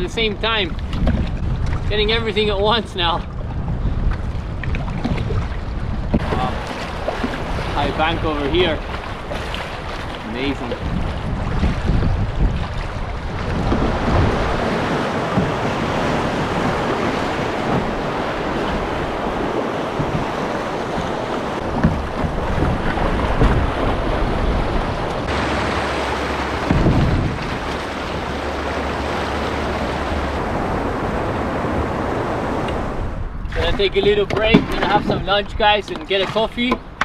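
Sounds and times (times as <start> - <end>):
wind buffeting microphone: 0.0 - 37.0
river rapids rushing: 25.3 - 32.5.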